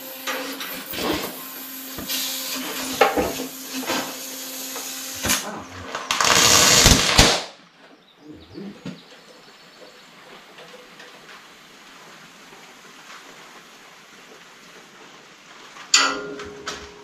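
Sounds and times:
welding torch hissing: 0:00.0 - 0:07.6
metal clanking: 0:15.9 - 0:17.0.

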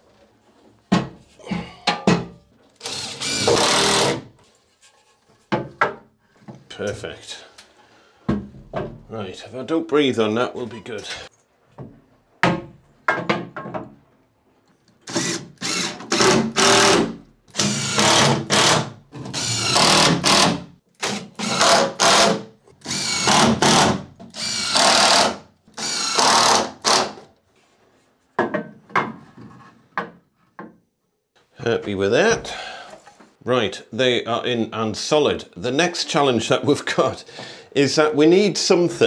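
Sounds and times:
power driver driving screws: 0:02.8 - 0:04.2, 0:15.1 - 0:27.2.

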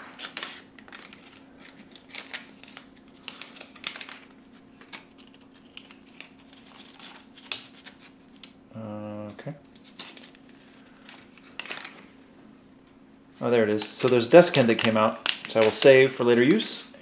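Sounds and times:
plastic tube clicks and crinkles: 0:13.7 - 0:16.0.

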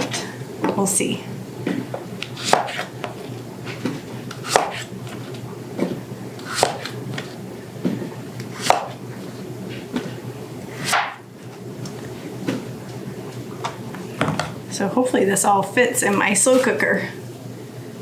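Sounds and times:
knife chopping zucchini: 0:02.4 - 0:03.2, 0:04.4 - 0:04.9, 0:06.4 - 0:07.2, 0:08.6 - 0:09.0, 0:10.8 - 0:11.2.

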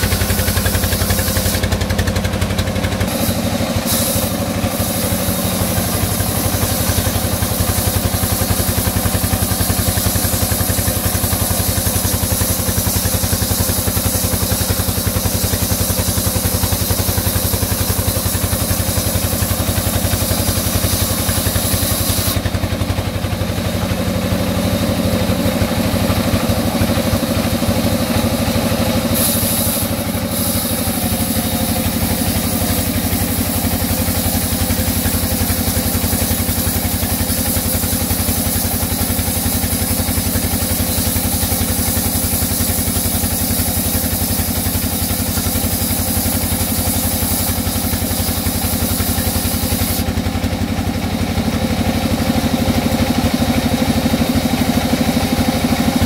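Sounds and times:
high hiss: 0:00.0 - 0:02.0, 0:03.0 - 0:22.6, 0:27.1 - 0:50.1
band saw cutting wood: 0:00.0 - 0:50.6.

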